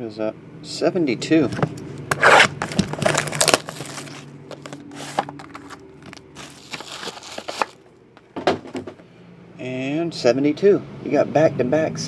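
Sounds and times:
foil packs crinkling: 2.1s - 7.9s.

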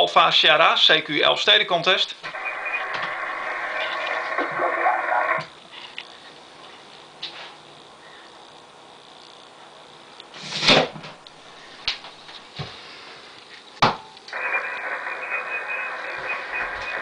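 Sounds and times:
radio static hiss: 2.2s - 6.1s, 14.3s - 17.0s.

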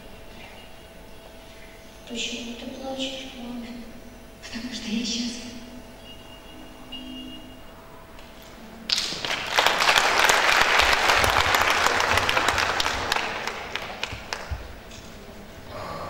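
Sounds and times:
audience applauding: 8.9s - 15.0s.

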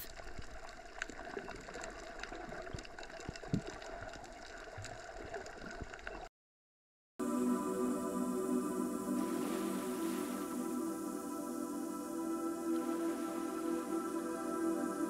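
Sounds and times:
small underwater clicks: 0.0s - 6.3s
underwater watery hiss: 7.2s - 15.0s.

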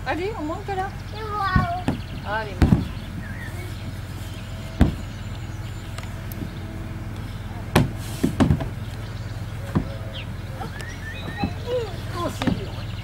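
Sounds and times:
low rumble: 0.0s - 13.0s
sharp knocks: 1.5s - 3.0s, 4.8s - 5.1s, 7.7s - 8.8s, 9.7s - 10.0s.

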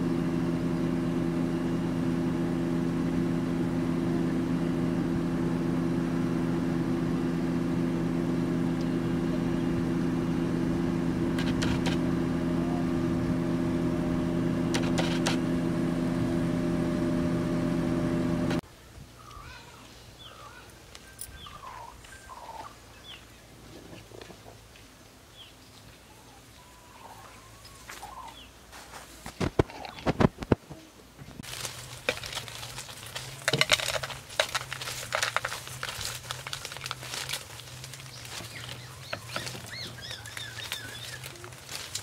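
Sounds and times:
low hum: 0.0s - 18.6s
birds chirping: 19.2s - 24.6s, 25.3s - 28.7s, 37.5s - 41.9s
clicks and crackles of handling: 29.2s - 42.0s.

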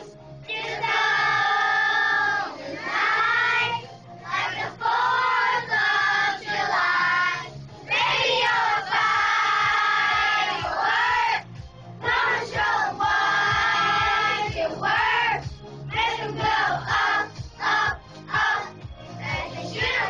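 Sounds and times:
children's choir singing: 0.0s - 11.4s, 12.0s - 20.0s.

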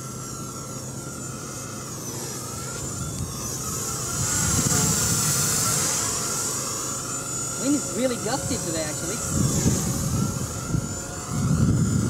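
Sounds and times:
rc helicopter motor whine: 0.0s - 12.0s
wind buffeting microphone: 2.8s - 6.4s, 7.6s - 12.0s.

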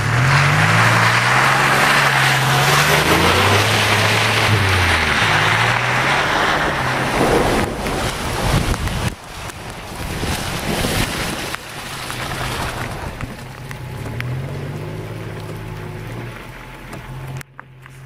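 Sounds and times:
vehicle engine running: 0.0s - 10.1s, 11.5s - 18.0s
tyres splashing through water: 0.0s - 17.4s
wind buffeting microphone: 2.6s - 13.9s.

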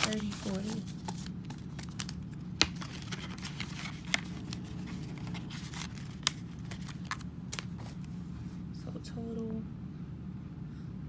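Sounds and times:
paper banknotes rustling: 0.0s - 8.4s
steady low hum: 0.0s - 11.0s.

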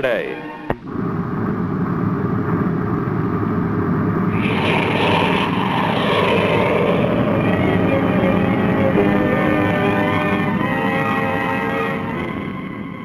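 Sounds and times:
rocket engine roar: 0.8s - 13.0s.

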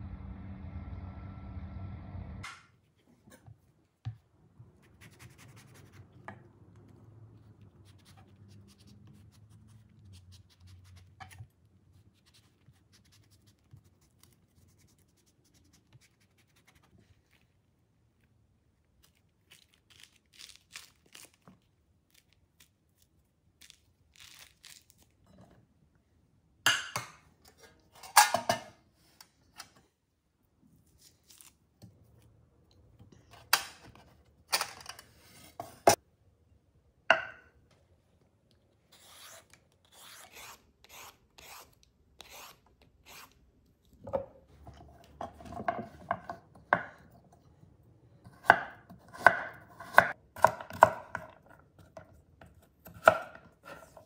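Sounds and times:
citrus peel tearing: 19.0s - 25.2s
knife chopping on wooden board: 48.3s - 51.3s.

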